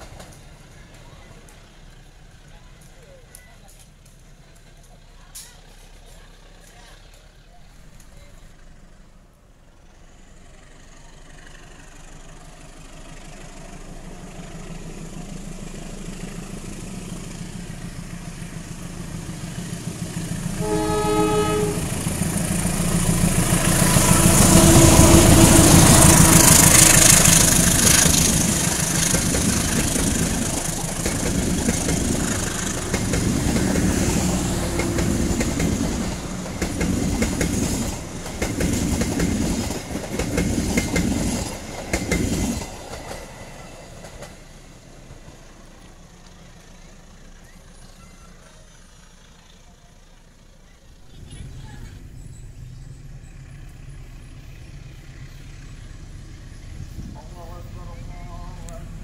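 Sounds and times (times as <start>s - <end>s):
diesel locomotive engine: 0.0s - 59.0s
train horn blast: 20.5s - 22.2s, 23.8s - 27.2s
train wheels clattering over rail joints: 21.9s - 47.8s.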